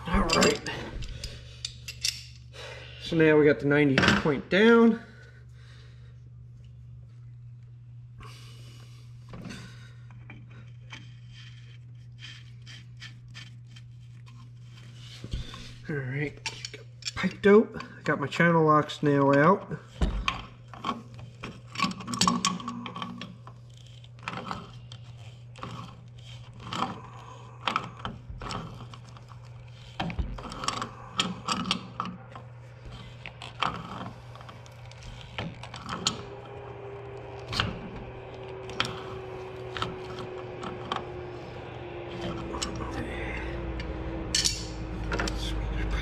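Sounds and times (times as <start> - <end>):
faint steady hum: 0.0 - 46.0
pliers clicking on metal pipe: 0.3 - 2.4, 44.3 - 45.4.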